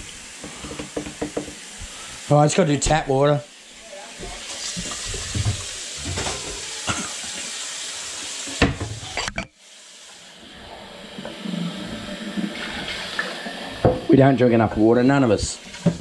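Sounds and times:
tap water running into sink: 0.0s - 9.4s, 10.0s - 16.0s
sharp knocks: 0.7s - 1.6s.

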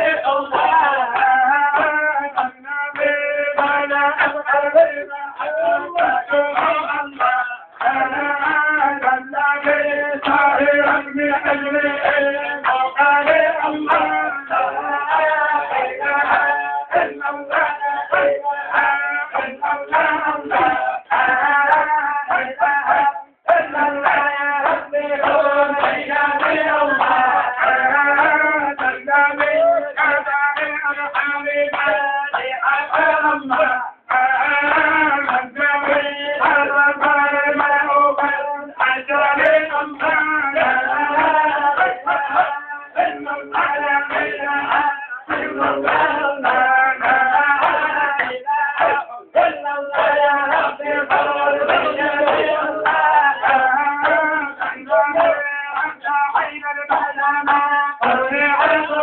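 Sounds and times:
man chanting into a microphone: 0.0s - 59.0s
men chanting together: 0.0s - 59.0s.

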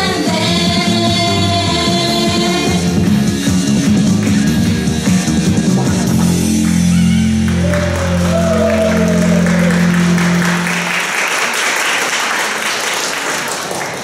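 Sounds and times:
song chord over loudspeaker: 6.1s - 11.4s
audience applause: 6.6s - 14.0s.

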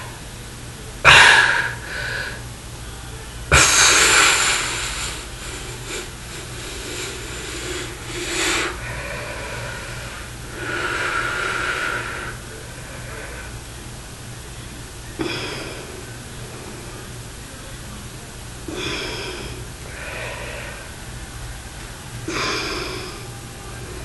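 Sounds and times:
steady low hum: 0.0s - 24.0s
man breathing forcefully: 3.6s - 13.7s, 18.7s - 21.1s.

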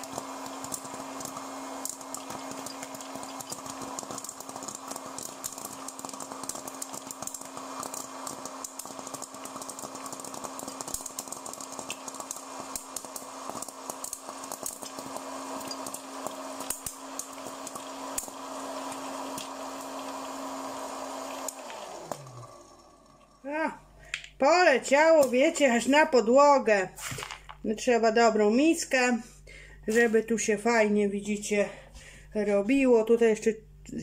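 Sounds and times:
popcorn knocking on plastic: 0.0s - 20.0s
popcorn kernels popping: 0.0s - 23.4s, 24.0s - 26.2s
popcorn maker fan hum: 0.0s - 26.2s.

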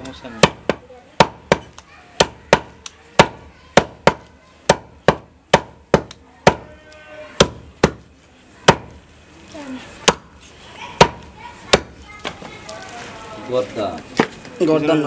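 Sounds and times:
cleaver chopping meat on wood: 0.4s - 6.8s, 7.4s - 8.0s, 8.7s - 8.9s, 10.0s - 10.3s.

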